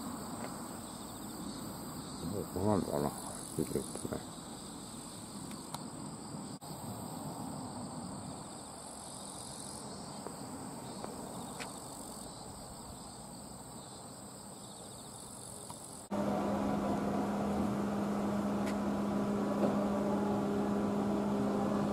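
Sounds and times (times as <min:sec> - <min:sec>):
insects chirring: 0:00.0 - 0:16.1
low machine hum: 0:16.1 - 0:21.9.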